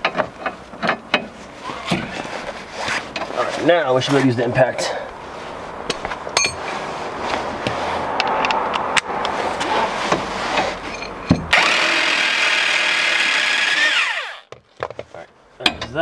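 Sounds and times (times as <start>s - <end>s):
impact wrench rattling and whining: 11.3s - 14.6s.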